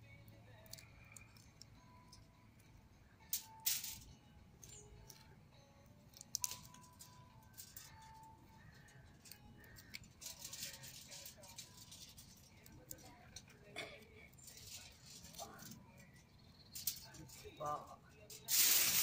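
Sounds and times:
garlic skins crackling when peeled: 6.1s - 6.8s.

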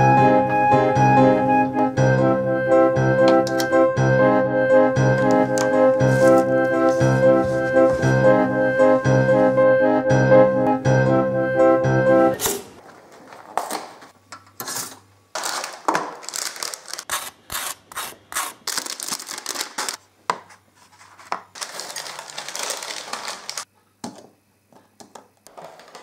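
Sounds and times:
cardboard crackling rustles: 6.0s - 8.2s, 20.8s - 23.7s.

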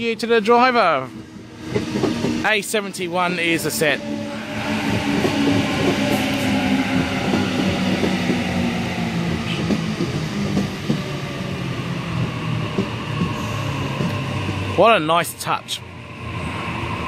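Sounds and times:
electric train traction motor tones: 4.0s - 11.0s.

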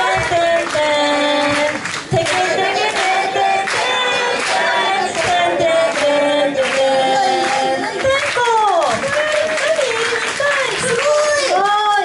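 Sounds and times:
steady beat: 0.0s - 7.9s
voices singing together: 0.0s - 8.2s.

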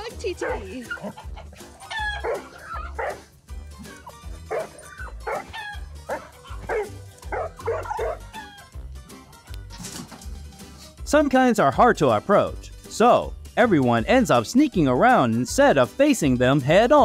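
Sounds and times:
young dog yipping and barking: 0.4s - 3.3s, 3.9s - 8.7s.

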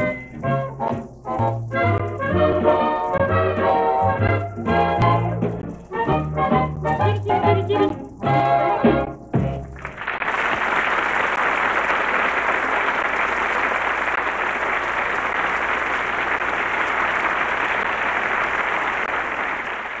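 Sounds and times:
studio audience applauding: 9.7s - 20.0s.

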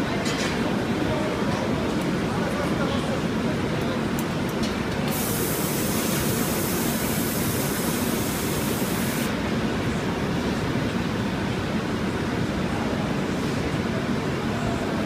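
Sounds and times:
furnace roar: 5.0s - 9.4s
hose nozzle spraying hiss: 5.1s - 9.3s.

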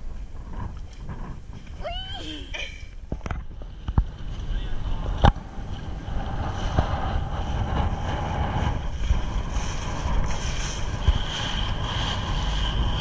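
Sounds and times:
wind buffeting microphone: 0.0s - 13.0s
outboard motor whining: 0.4s - 13.0s
water hissing along hull: 3.6s - 13.0s.

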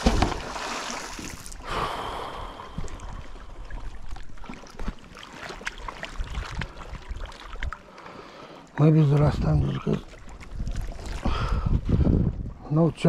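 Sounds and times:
magnet splashing into water: 0.0s - 1.6s.

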